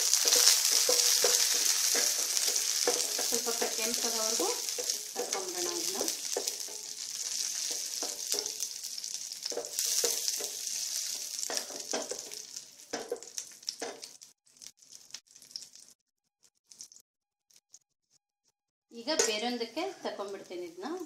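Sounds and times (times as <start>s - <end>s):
stirring clicks and scrapes: 0.0s - 8.6s
nuts sizzling in a pan: 0.0s - 16.0s, 19.0s - 21.0s.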